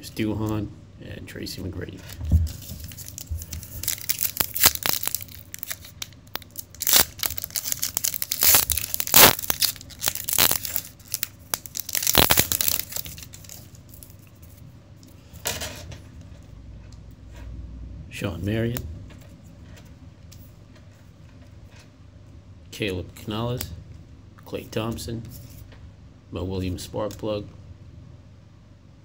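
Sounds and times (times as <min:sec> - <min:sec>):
foil wrapper tearing and crinkling: 0:02.5 - 0:14.3.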